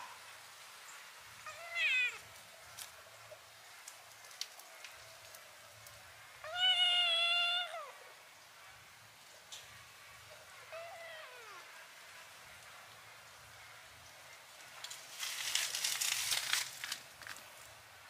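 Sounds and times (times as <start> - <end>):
kitten mewing: 1.5 - 2.2, 6.4 - 8.0.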